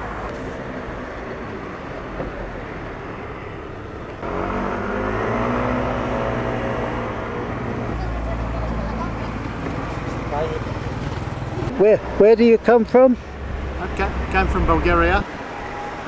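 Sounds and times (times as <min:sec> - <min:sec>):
engine hum: 0:00.0 - 0:16.0
passing cars hum: 0:00.0 - 0:16.0.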